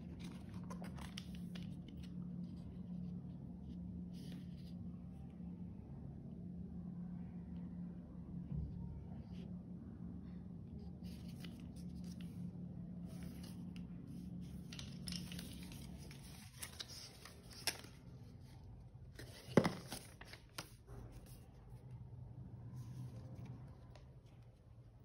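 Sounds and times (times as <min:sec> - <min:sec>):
paper rustling: 0:00.0 - 0:02.9, 0:11.0 - 0:12.4, 0:13.0 - 0:21.5
steady low hum: 0:00.0 - 0:25.0.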